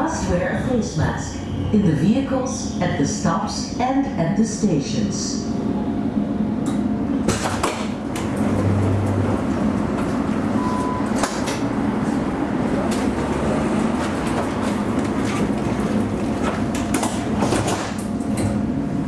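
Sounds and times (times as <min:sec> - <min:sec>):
tram equipment humming: 0:00.0 - 0:19.0
short beep: 0:10.6 - 0:11.2.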